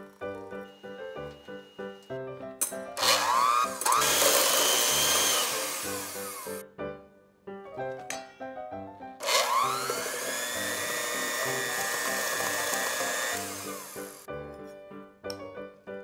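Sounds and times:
background music: 0:00.0 - 0:16.0
electric hand mixer whine: 0:03.0 - 0:06.6, 0:09.2 - 0:14.3.

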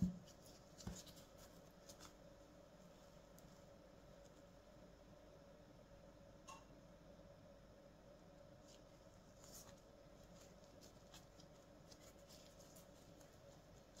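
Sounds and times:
bread roll crackling and rustling: 0:00.0 - 0:04.8, 0:08.4 - 0:14.0
faint hum: 0:00.0 - 0:14.0.

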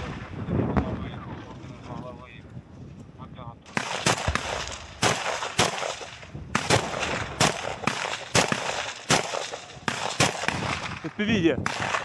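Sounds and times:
gunshots with echo: 0:03.7 - 0:12.0.

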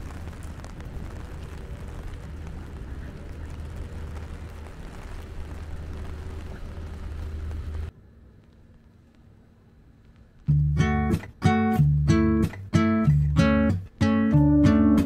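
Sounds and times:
steady low rumble: 0:00.0 - 0:14.8
rain on an umbrella: 0:00.0 - 0:15.0.

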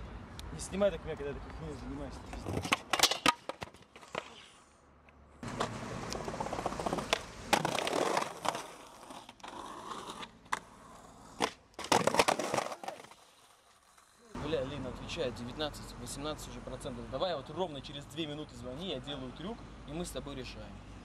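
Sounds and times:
skateboard wheels rolling on concrete: 0:00.6 - 0:14.9
skateboard clacks: 0:05.5 - 0:09.6, 0:11.4 - 0:13.2.

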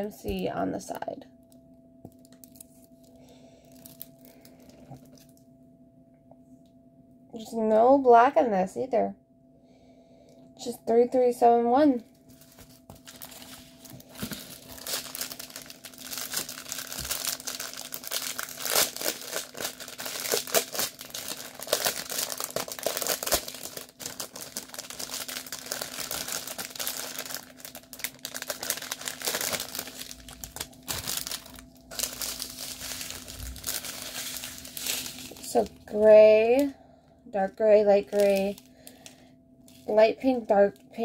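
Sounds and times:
plastic packaging crinkling: 0:02.1 - 0:05.4, 0:12.0 - 0:36.7, 0:37.9 - 0:40.0
plastic tearing: 0:12.4 - 0:36.7, 0:38.1 - 0:39.0.

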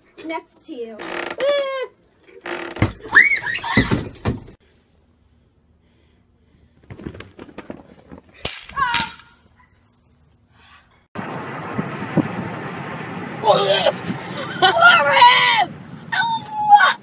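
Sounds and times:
girls screaming: 0:03.0 - 0:04.0, 0:14.6 - 0:17.0
sharp crack: 0:08.4 - 0:09.4.

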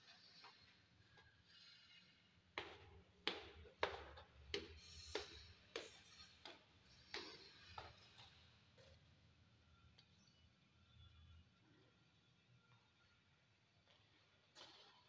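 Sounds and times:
hard-soled footsteps echoing: 0:02.5 - 0:08.9.

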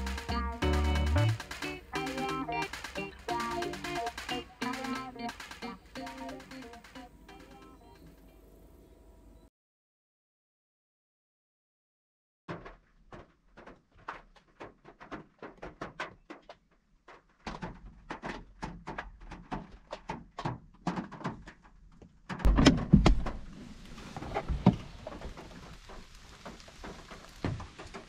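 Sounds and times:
raindrops ticking on car roof: 0:00.0 - 0:07.5, 0:23.6 - 0:28.0
steady hiss of falling rain: 0:23.3 - 0:28.0.

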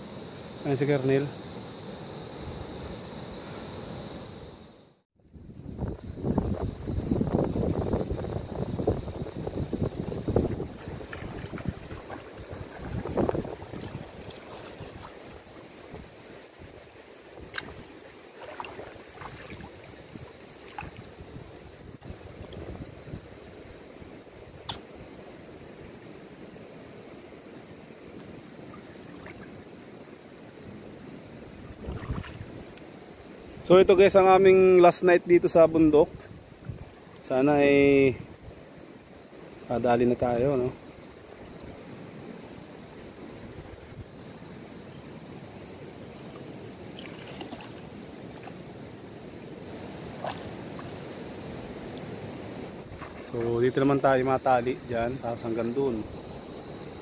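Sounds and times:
shallow river water rushing: 0:07.5 - 0:57.0
light water splashes: 0:10.3 - 0:21.2, 0:28.2 - 0:29.7, 0:31.8 - 0:32.9, 0:46.2 - 0:53.8
faint ticks: 0:41.6 - 0:41.8.

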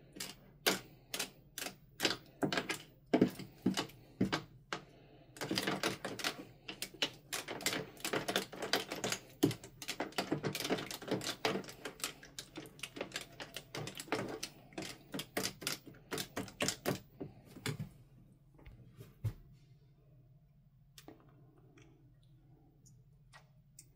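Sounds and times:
spoon stirring wet slime: 0:00.0 - 0:17.8.

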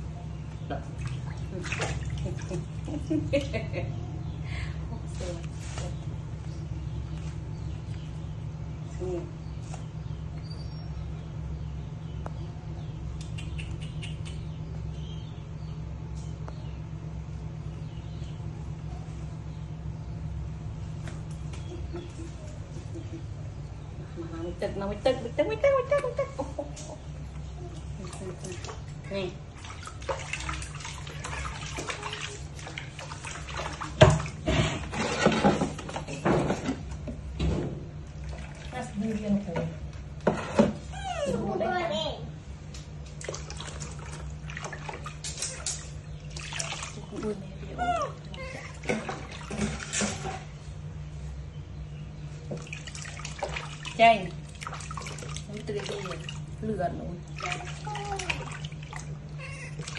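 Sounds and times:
steady low hum: 0:00.0 - 0:59.9
water splashing in plastic tub: 0:00.6 - 0:03.8, 0:27.7 - 0:40.8, 0:43.0 - 0:50.6, 0:52.4 - 0:59.9
baby monkeys squeaking: 0:47.7 - 0:48.8, 0:59.4 - 0:59.9.

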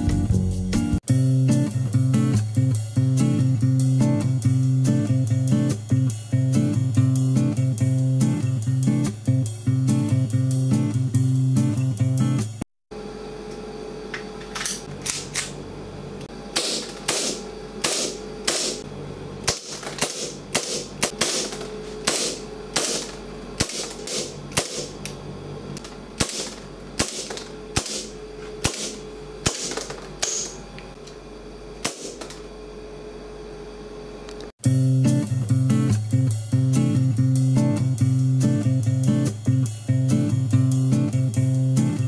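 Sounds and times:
airsoft pistol shots: 0:16.6 - 0:18.8, 0:19.5 - 0:25.0, 0:26.2 - 0:30.6, 0:31.8 - 0:32.3.

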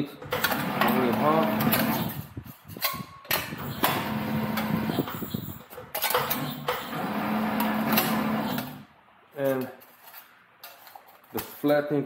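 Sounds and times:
sheet metal clanking and rattling: 0:00.0 - 0:08.9
machine motor hum: 0:00.4 - 0:02.1, 0:06.2 - 0:08.8.

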